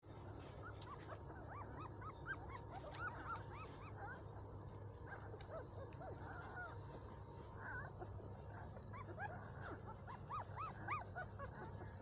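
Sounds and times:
low steady hum: 0.0 - 12.0
puppies squeaking and whimpering: 0.6 - 4.2, 7.6 - 12.0.

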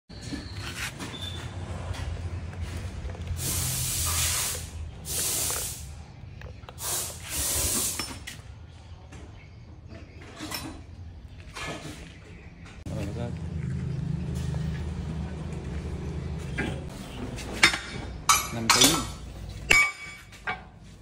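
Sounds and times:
hissing spray bursts: 3.4 - 6.0, 6.8 - 8.1.

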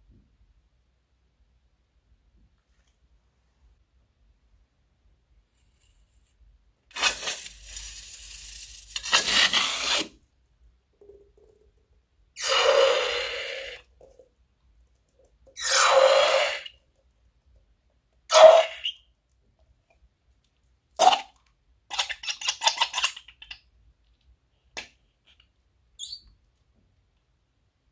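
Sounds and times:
slime squeezing out: 6.9 - 10.2, 12.4 - 13.9.

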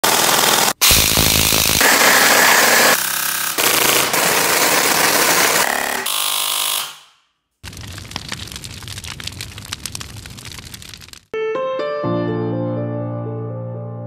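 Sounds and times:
distorted glitch noise: 0.0 - 3.0
crackling clicks: 7.6 - 11.3.

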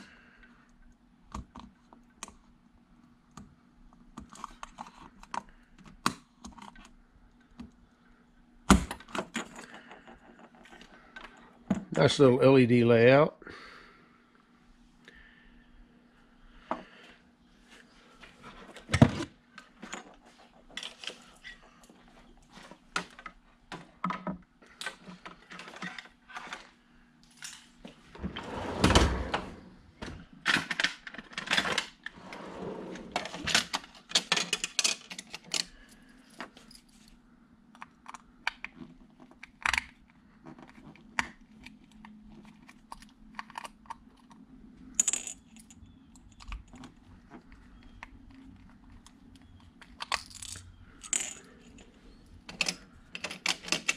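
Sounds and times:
faint steady hum: 0.0 - 53.9
small hard objects clicking and knocking: 37.8 - 51.9.

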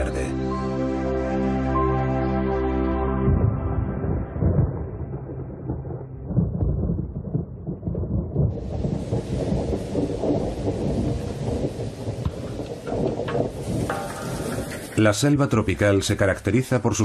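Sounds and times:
thunder rumbling: 3.3 - 16.2
heavy rain hiss: 8.6 - 16.0.

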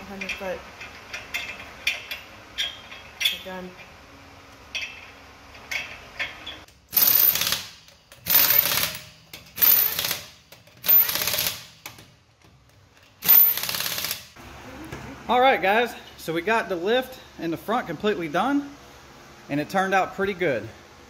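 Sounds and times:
impact wrench rattling bursts: 4.7 - 12.0, 13.0 - 14.4.

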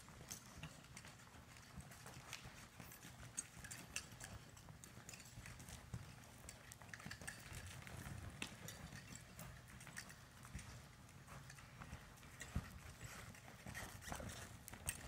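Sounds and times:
muffled hoofbeats on dirt: 0.0 - 15.0.

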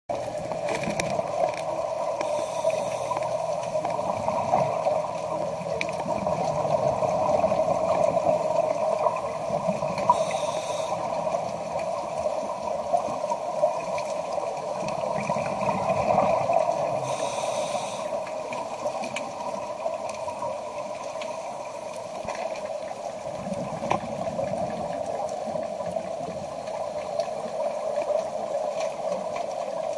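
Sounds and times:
steady hum: 0.1 - 13.9, 14.6 - 18.6
underwater bubbles gurgling: 0.1 - 29.9
inhaled breath hisses: 2.2 - 3.5, 10.1 - 11.3, 17.0 - 18.3.

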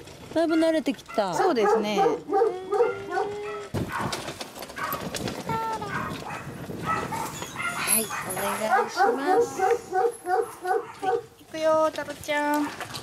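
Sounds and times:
dog paws on asphalt: 0.0 - 13.0
wheelchair wheels scraping and rattling: 0.0 - 13.0
dog whimpering: 1.2 - 3.8, 7.0 - 11.2.

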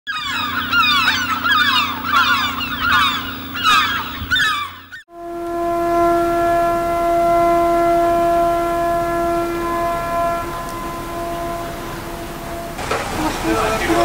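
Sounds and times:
flock of birds calling: 0.1 - 5.0
steady horn blast: 5.1 - 14.0.

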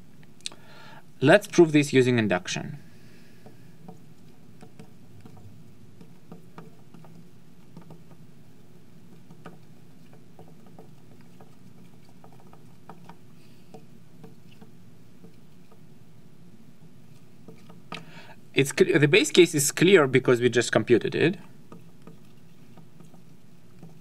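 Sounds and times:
low room hum: 0.0 - 24.0
marker tapping and scratching glass: 3.4 - 8.3, 9.0 - 15.9, 17.1 - 18.0, 21.4 - 24.0.

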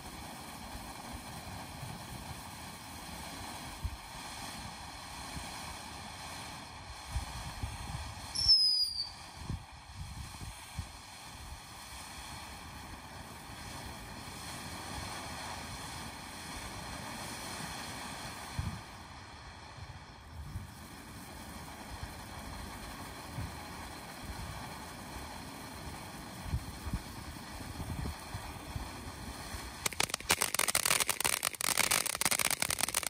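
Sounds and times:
firework fountain hissing: 0.0 - 33.0
falling whistle: 8.3 - 9.2
low pops: 29.8 - 33.0.

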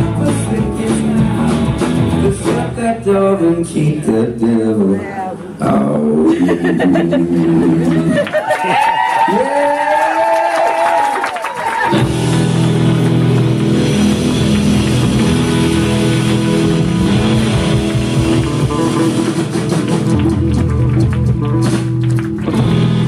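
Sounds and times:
rock band playing loud chords: 0.0 - 3.3, 11.9 - 23.0.

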